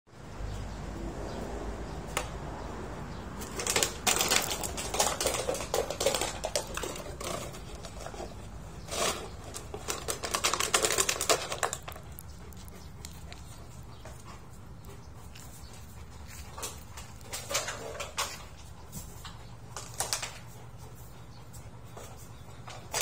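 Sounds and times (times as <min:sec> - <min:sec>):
dog chewing plastic bottle: 0:03.4 - 0:14.3, 0:16.5 - 0:18.7, 0:19.6 - 0:20.6.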